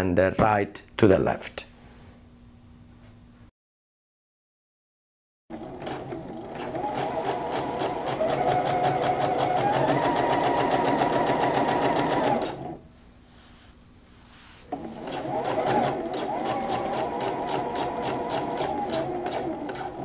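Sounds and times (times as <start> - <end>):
sewing machine stitching: 5.5 - 12.8, 14.7 - 20.0.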